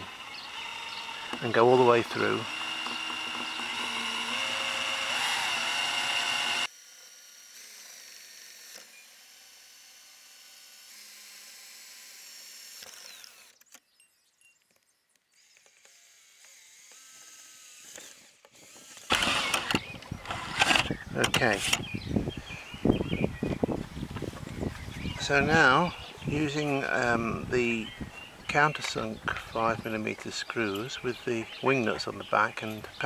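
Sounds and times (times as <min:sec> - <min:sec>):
cordless drill boring through plastic: 0:00.0 - 0:13.8, 0:15.3 - 0:22.1.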